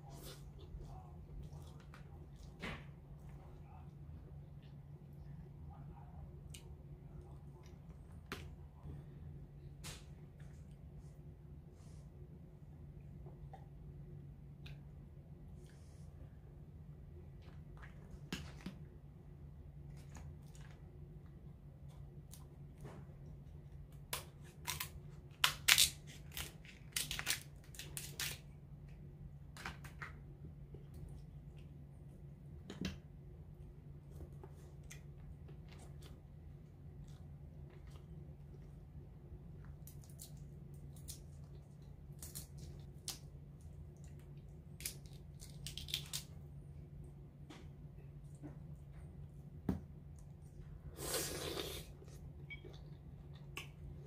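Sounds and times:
low steady hum: 0.0 - 54.0
shears cracking crab shell: 24.1 - 28.4, 44.8 - 46.3.

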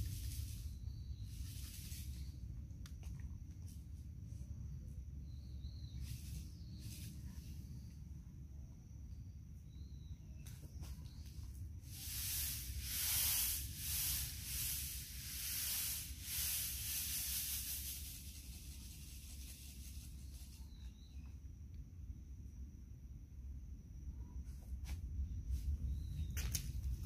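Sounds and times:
seeds rustling on plastic plate: 11.9 - 21.0.

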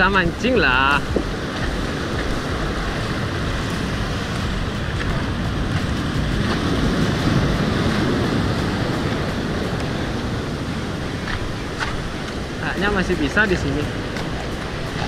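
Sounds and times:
surf breaking on rocky shore: 0.0 - 15.0
wind buffeting microphone: 0.0 - 15.0.

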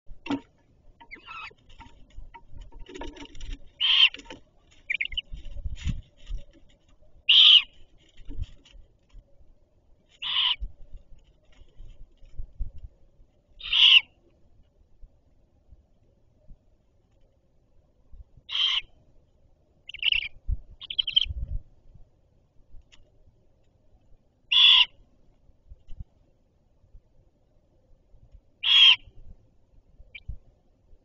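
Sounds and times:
bumps and rustling on nest: 0.1 - 9.3
owl chicks screeching: 1.1 - 1.6, 3.8 - 4.3, 4.9 - 5.3, 7.3 - 7.7, 10.2 - 10.6, 13.6 - 14.1, 18.5 - 18.9, 19.9 - 21.3, 24.5 - 25.0, 28.6 - 29.1.

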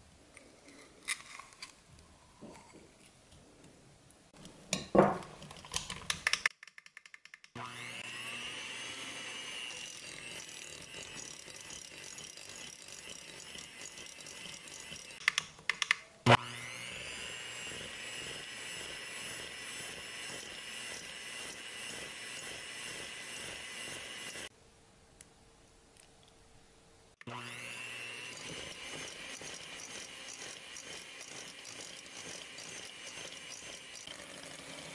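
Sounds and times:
electric hand mixer running: 7.6 - 15.2, 16.3 - 24.5, 27.2 - 34.9.

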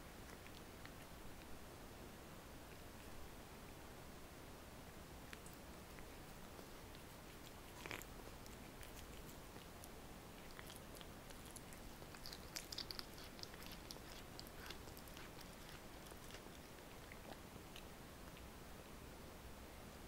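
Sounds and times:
cat chewing meat: 0.0 - 1.5, 5.2 - 18.5
teeth clicking on meat: 6.9 - 18.5.

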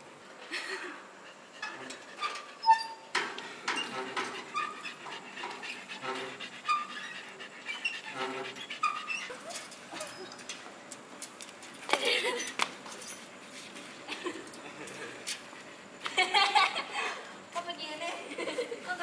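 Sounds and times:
metal swing squeaking: 1.6 - 10.6.

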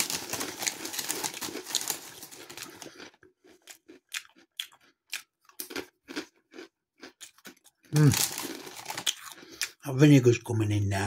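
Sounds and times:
plastic crisp packet crinkling: 0.0 - 4.0, 7.4 - 9.8
crunchy snacks chewed: 0.0 - 9.8.

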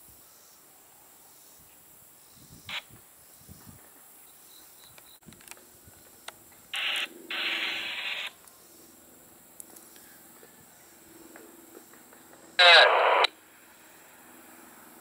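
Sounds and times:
radio static hissing: 6.7 - 8.4, 12.6 - 13.4
radio squelch burst: 6.8 - 8.4, 12.6 - 13.3.

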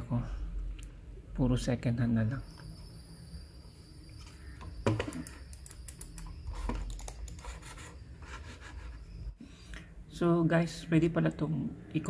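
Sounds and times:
computer mouse clicks and taps: 4.6 - 7.7.

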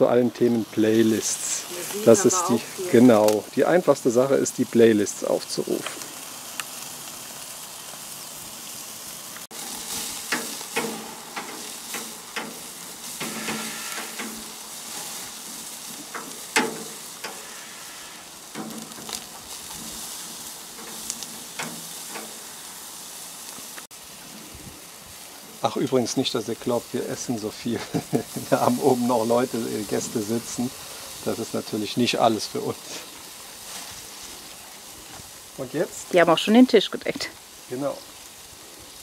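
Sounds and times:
meat sizzling on grill: 0.0 - 39.0
grill tongs clicking and scraping: 5.8 - 7.2, 9.6 - 23.9.

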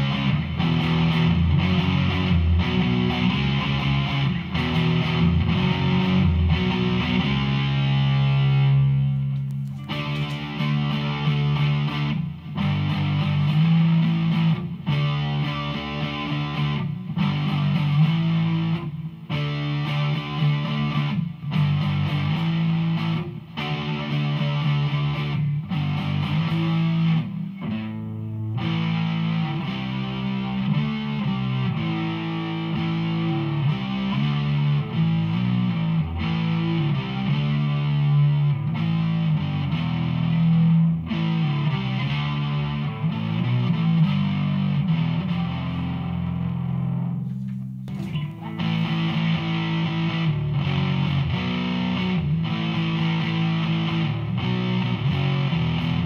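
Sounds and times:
distorted electric guitar: 0.0 - 56.0.

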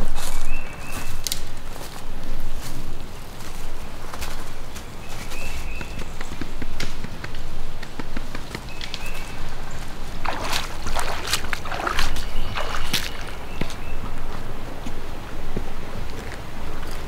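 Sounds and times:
footsteps through grass and leaves: 0.0 - 17.0
wading through water splashing: 9.0 - 14.1.

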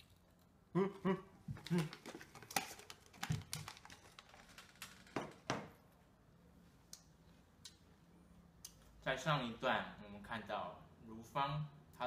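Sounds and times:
crisps crunching in mouth: 1.6 - 4.6.

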